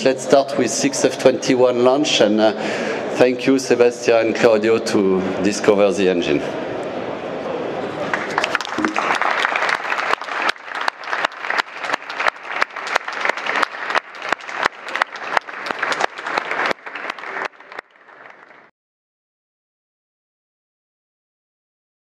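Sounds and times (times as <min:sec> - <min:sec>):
audience applauding: 0:08.0 - 0:18.7.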